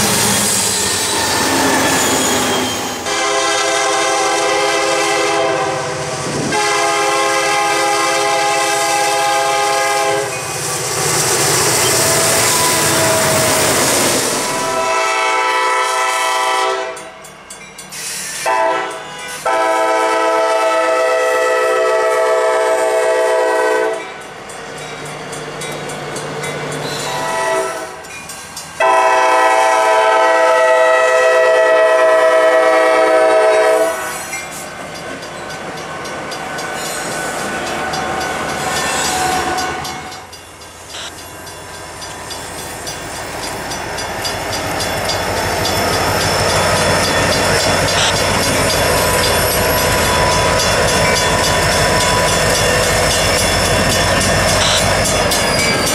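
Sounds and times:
train engines and wheels rumbling: 0.0 - 55.9
locomotive air horn blasts: 3.0 - 10.4, 12.2 - 13.8, 14.4 - 17.1, 18.4 - 24.0, 27.0 - 28.0, 28.8 - 34.4.

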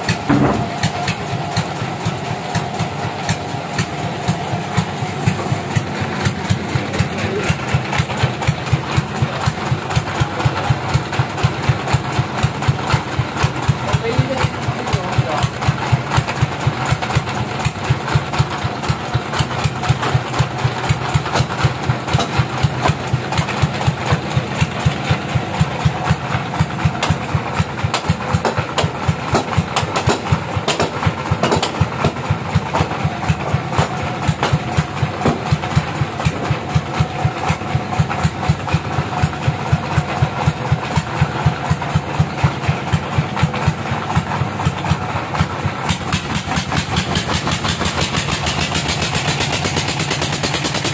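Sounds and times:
bandsaw mill engine running: 0.0 - 50.9.

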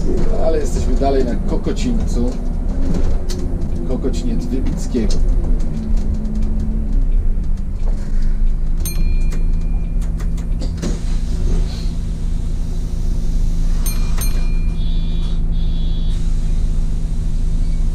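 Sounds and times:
bus engine idling: 0.0 - 17.9
high electronic tone: 13.7 - 16.3.

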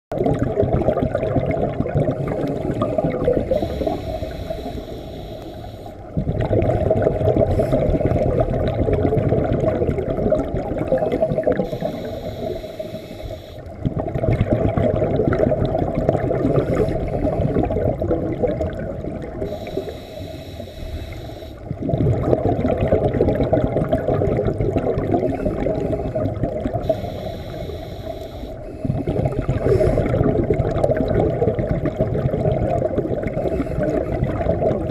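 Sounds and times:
exhaled bubbles burbling: 0.1 - 34.9
regulator inhale hiss: 3.4 - 6.1, 11.6 - 13.7, 16.5 - 17.6, 19.5 - 21.6, 25.3 - 30.1.

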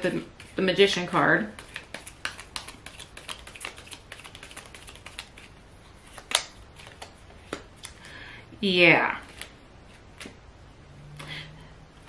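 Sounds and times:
cards being shuffled: 0.1 - 8.0, 9.2 - 10.4.

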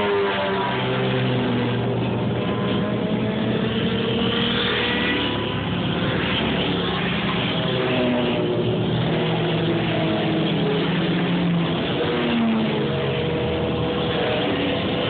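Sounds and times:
motorcycles passing at speed: 0.0 - 15.0.

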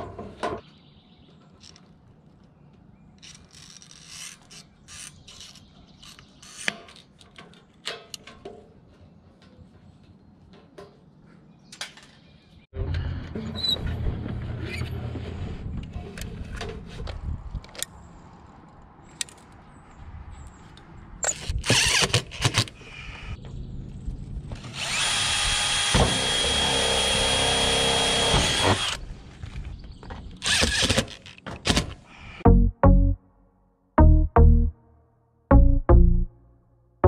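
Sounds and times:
cordless drill driving screws: 21.3 - 22.7, 24.6 - 29.0, 30.4 - 31.3.

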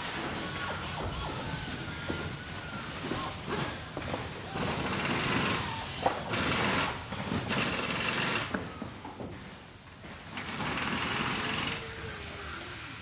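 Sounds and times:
factory machinery running: 0.0 - 8.6.

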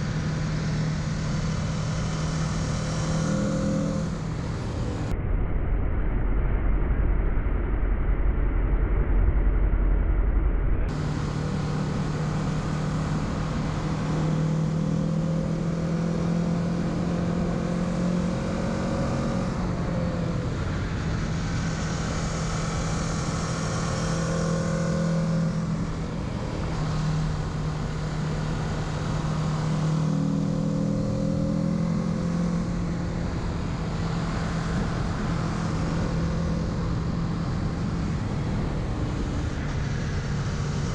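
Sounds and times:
motorcycle engine accelerating: 0.0 - 5.1, 10.9 - 40.9
muffled low rumble: 4.0 - 13.7.

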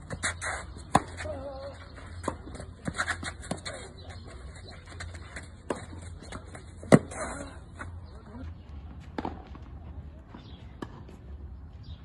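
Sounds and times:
tennis ball hits and bounces: 0.1 - 1.4, 5.1 - 7.3
racket striking ball: 0.2 - 1.3.

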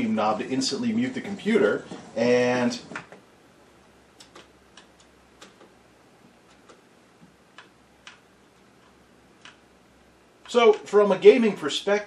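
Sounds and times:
keyboard keystroke clicks: 4.2 - 5.7.

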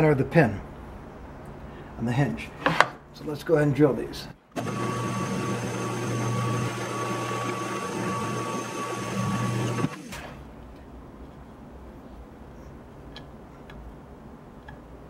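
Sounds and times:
drill press drilling into wood: 4.6 - 10.4.

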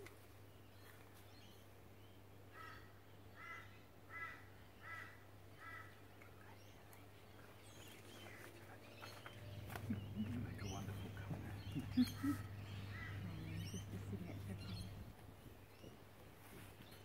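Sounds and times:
bird calling: 7.8 - 15.2
steady low hum: 8.5 - 15.7.

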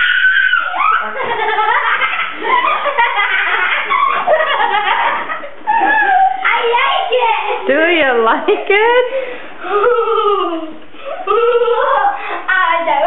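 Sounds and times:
people laughing and squealing: 0.0 - 7.6, 9.6 - 12.4.

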